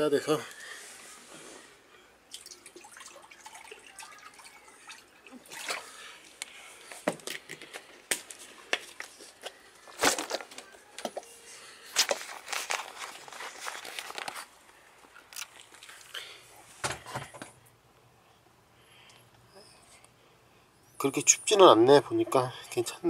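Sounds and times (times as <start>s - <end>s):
plastic sheeting crinkling: 11.7s - 16.1s.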